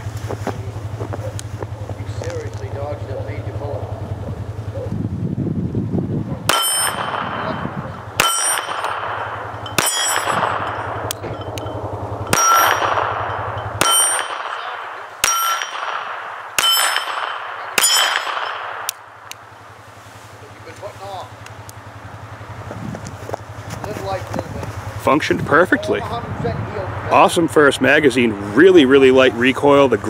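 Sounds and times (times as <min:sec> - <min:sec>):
steel target plate clanging: 0:06.5 - 0:19.1
pistol shots: 0:06.5 - 0:19.6.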